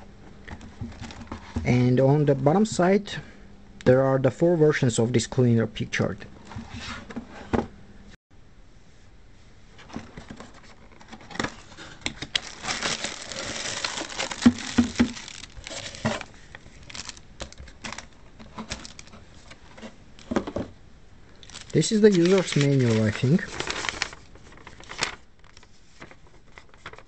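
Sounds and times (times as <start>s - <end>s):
cardboard scraping: 9.8s - 17.2s, 21.5s - 25.2s
cardboard box being opened: 10.3s - 17.2s, 17.8s - 19.2s, 21.4s - 25.2s
plastic wrap crinkling: 12.1s - 19.6s, 21.3s - 27.0s.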